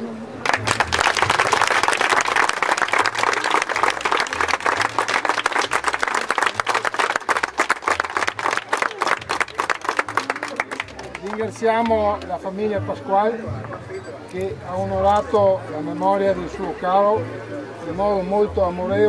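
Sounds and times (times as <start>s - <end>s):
crowd applauding: 0.4s - 11.6s.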